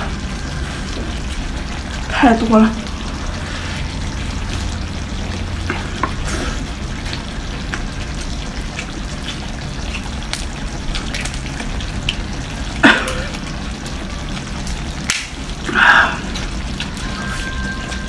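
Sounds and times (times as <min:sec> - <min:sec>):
low hum: 0:00.0 - 0:18.0
crab shell cracking and chewing: 0:09.8 - 0:12.2.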